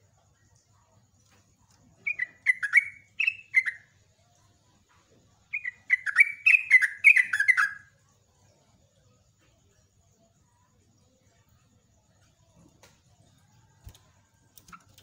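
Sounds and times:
bulbul singing: 1.8 - 4.1, 5.5 - 8.1.

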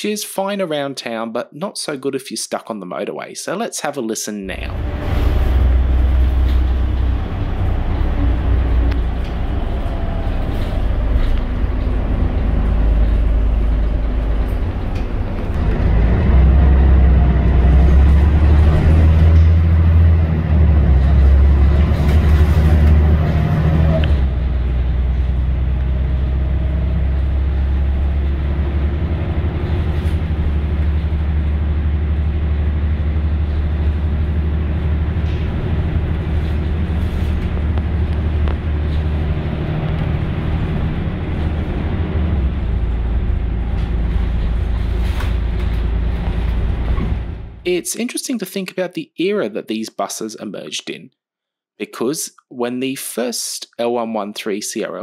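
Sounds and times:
bus diesel engine droning: 4.5 - 47.7.

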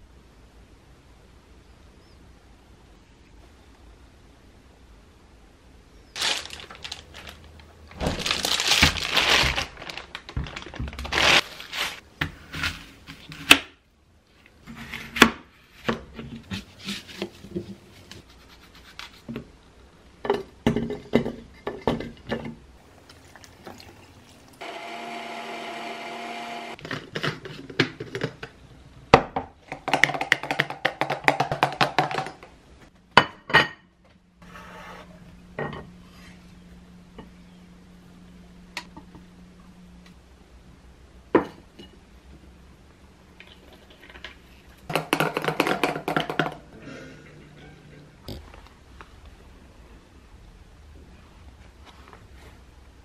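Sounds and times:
plastic bag crinkling: 6.2 - 12.0
electric blender running: 24.6 - 26.8.

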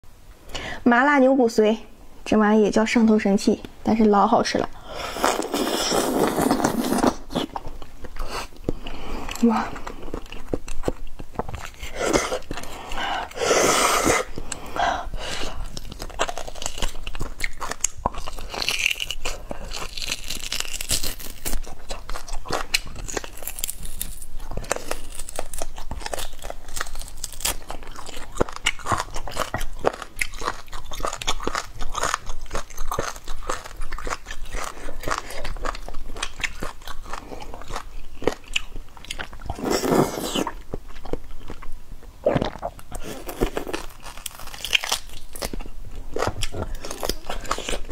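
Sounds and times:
sucking noises: 4.8 - 7.2, 11.8 - 15.7
person chewing: 4.8 - 47.9.

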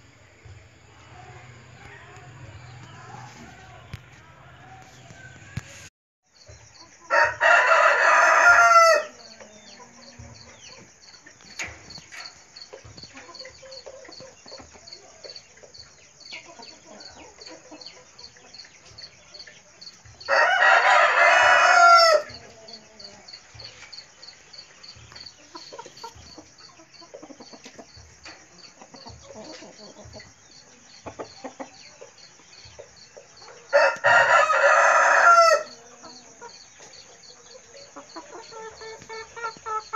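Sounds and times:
chickens clucking quietly: 0.0 - 39.9
rooster crowing: 7.1 - 9.4, 20.2 - 22.5, 33.7 - 36.0.

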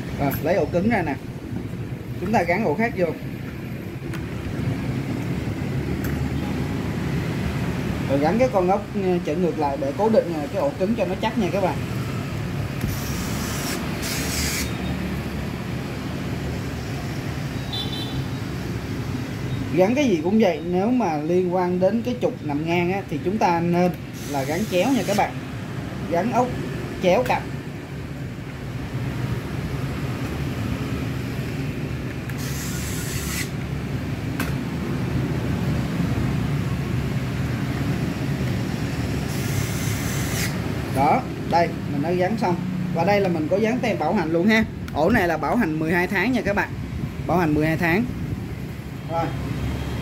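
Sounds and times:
electric screwdriver driving screws: 12.8 - 14.8, 32.3 - 33.6, 39.3 - 40.6
short scratchy hiss: 32.4 - 33.6, 39.3 - 40.6
sharp click: 34.4 - 34.6.

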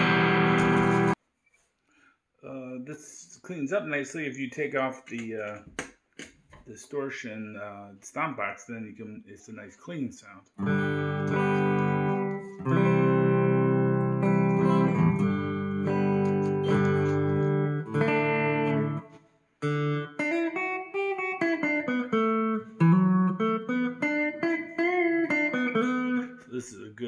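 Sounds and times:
clean electric guitar: 0.0 - 1.2, 10.6 - 26.6.

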